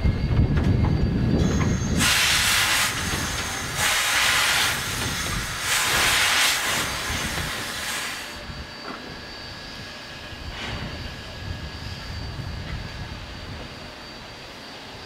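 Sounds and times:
low rumble: 0.0 - 3.8
steam locomotive hissing steam: 1.0 - 15.0.

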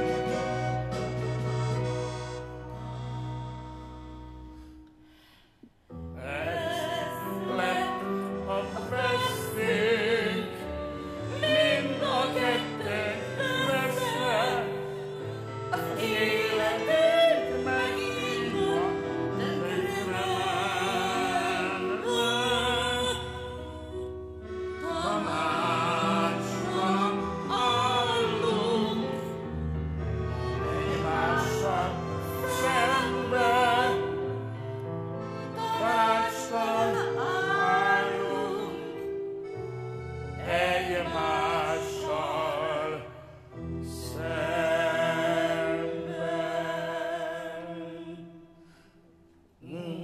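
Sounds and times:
instrumental backing: 0.0 - 5.2
operatic duet singing: 6.0 - 48.7, 49.6 - 50.0.

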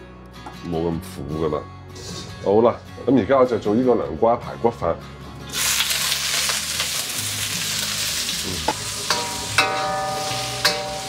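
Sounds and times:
vegetables sizzling in a wok: 5.5 - 11.0
metal spatula scraping a wok: 9.0 - 11.0.

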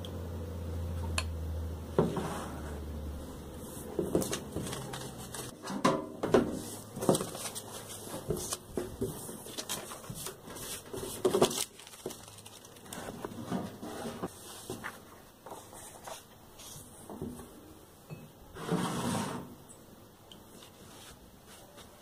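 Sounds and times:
paper rustling: 3.6 - 5.7, 6.5 - 16.9.

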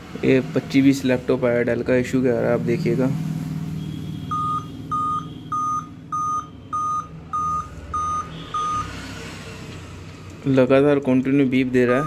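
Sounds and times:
laptop short beeps: 3.8 - 8.9.

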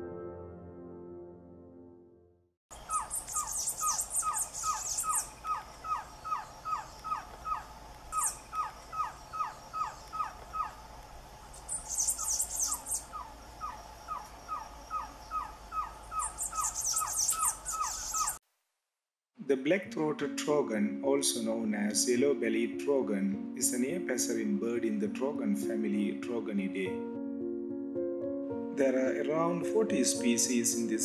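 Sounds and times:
piano music: 0.0 - 2.5, 19.6 - 31.0
high thin chirping: 2.8 - 7.2, 11.5 - 13.3, 16.2 - 18.4.

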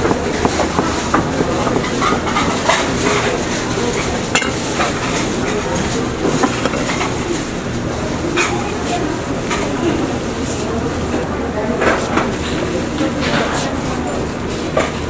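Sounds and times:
knife chopping dough on wooden board: 0.0 - 3.3
kitchen and market din: 0.0 - 15.0.

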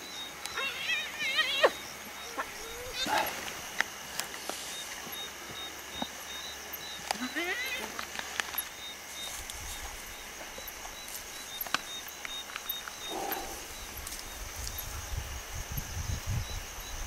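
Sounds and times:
insects chirping: 0.0 - 17.0
hyena growling: 2.3 - 3.6, 13.0 - 14.0
hyena grunt: 13.1 - 13.8.

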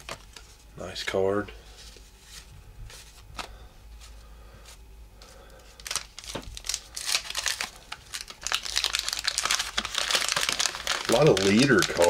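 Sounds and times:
paper wrapper tearing and crinkling: 5.8 - 12.0.

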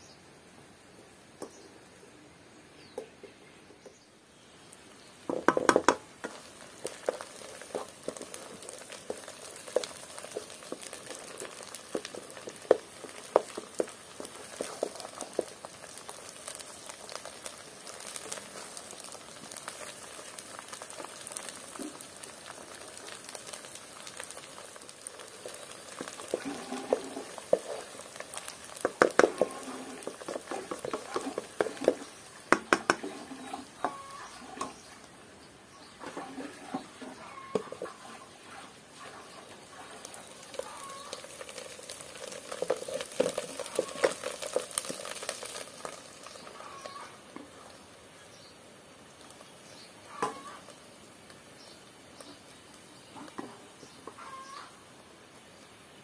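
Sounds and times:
herbs sizzling in oil: 4.3 - 56.0
wooden spatula scraping a pan: 6.2 - 15.6, 25.3 - 34.9, 36.0 - 46.0.

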